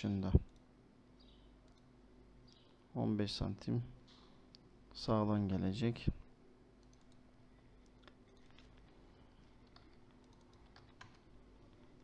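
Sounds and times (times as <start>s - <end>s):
low electrical hum: 0.0s - 12.0s
keyboard keystrokes: 9.6s - 11.3s.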